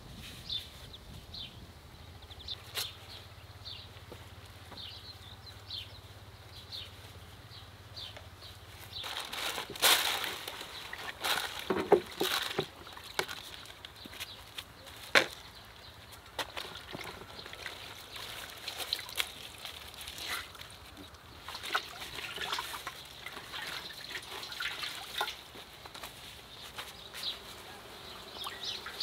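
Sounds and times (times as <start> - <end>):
wrapping crinkling and rustling: 8.8 - 27.4
faint bird chirps: 26.7 - 29.0.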